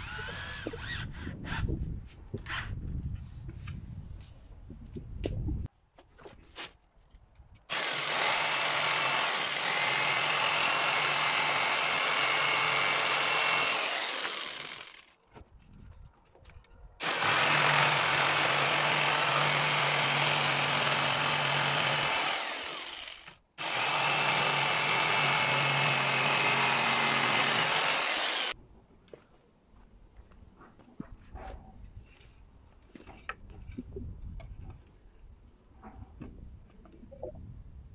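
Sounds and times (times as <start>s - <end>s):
jigsaw cutting wood: 7.7s - 15.1s, 17.0s - 28.6s.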